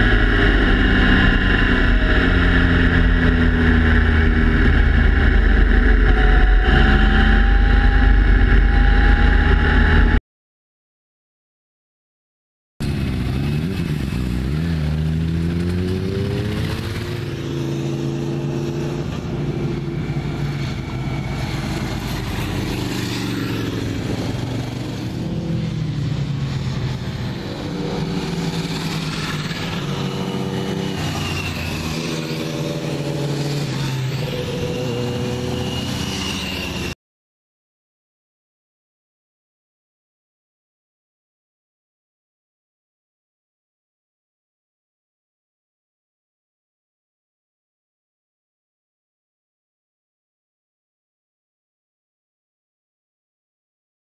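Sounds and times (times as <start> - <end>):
motorcycle engines revving: 0.0 - 10.2, 12.8 - 37.0.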